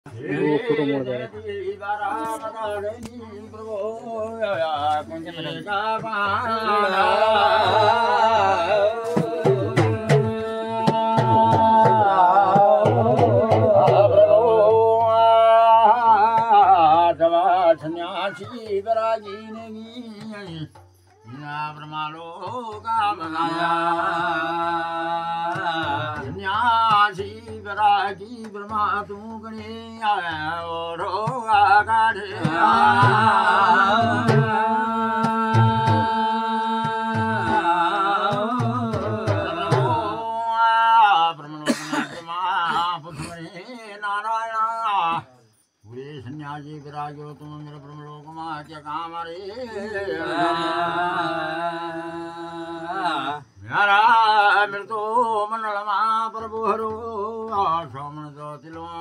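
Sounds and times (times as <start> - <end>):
men singing a devotional chant: 0.1 - 59.0
percussion strikes: 4.8 - 17.6, 20.0 - 40.4.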